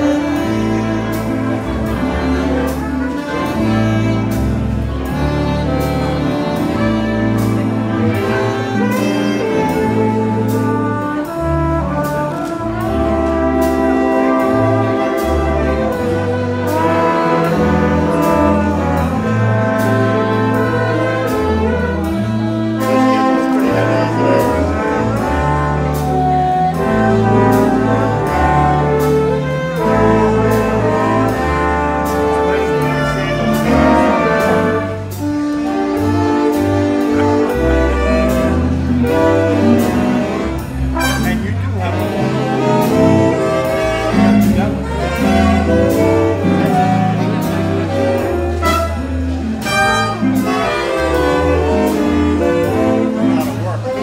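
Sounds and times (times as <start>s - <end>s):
big band swing music: 0.0s - 54.0s
walking bass line: 0.0s - 54.0s.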